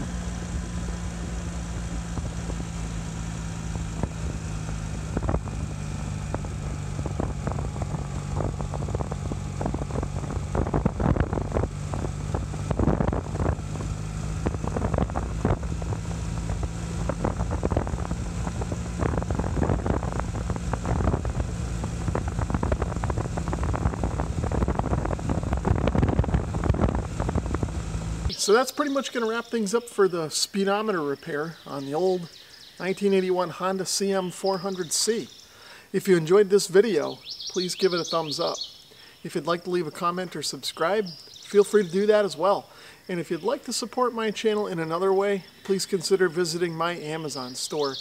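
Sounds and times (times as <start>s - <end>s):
wind buffeting microphone: 0.0s - 28.3s
motorcycle engine cruising: 0.0s - 30.1s.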